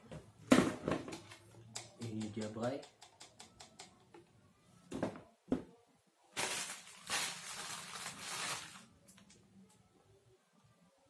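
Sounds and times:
plastic parts rustling: 6.3s - 9.3s.

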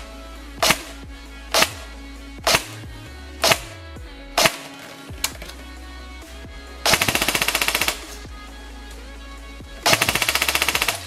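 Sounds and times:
background music: 0.0s - 11.0s
rapid full-auto airsoft burst: 0.6s - 3.8s, 4.4s - 5.0s, 6.8s - 8.2s, 9.8s - 11.0s
airsoft gun single shots: 2.5s - 2.8s, 4.4s - 4.8s.

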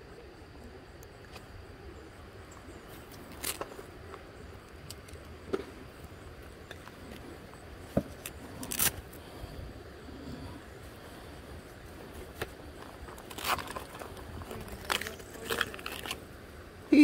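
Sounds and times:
low background rush: 0.0s - 17.0s
small hard objects clicking: 12.8s - 16.2s.

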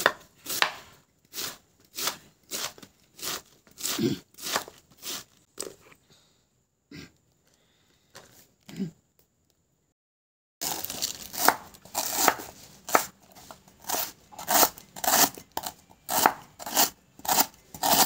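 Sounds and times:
knife slicing lemongrass on board: 0.0s - 5.3s, 11.3s - 18.0s.

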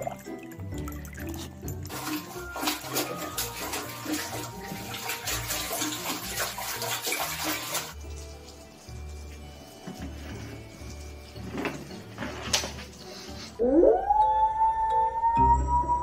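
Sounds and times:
puppy splashing in water: 0.0s - 8.6s.

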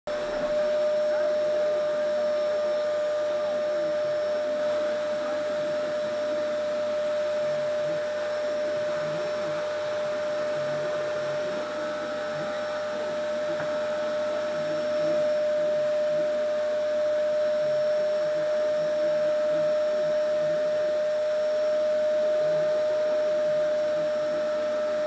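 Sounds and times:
vacuum cleaner motor whine: 0.1s - 25.0s.

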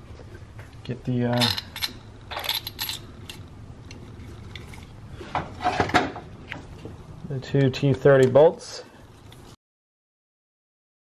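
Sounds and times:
small metal bolts clinking: 1.3s - 4.9s.

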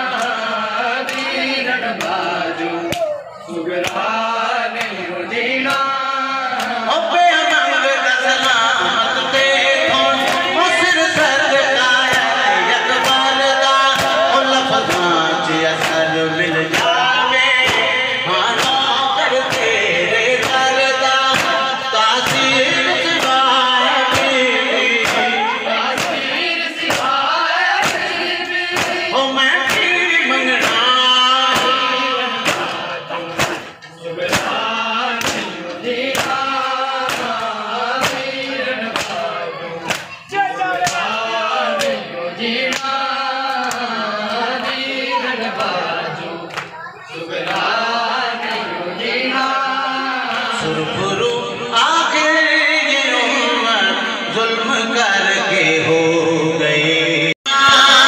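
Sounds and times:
man singing over a microphone: 0.0s - 58.0s
men chanting: 0.0s - 58.0s
chest-beating slaps: 15.8s - 16.1s, 17.6s - 18.0s, 18.6s - 19.8s, 20.4s - 23.5s, 24.1s - 24.4s, 25.0s - 29.1s, 31.5s - 41.2s, 42.7s - 44.0s.

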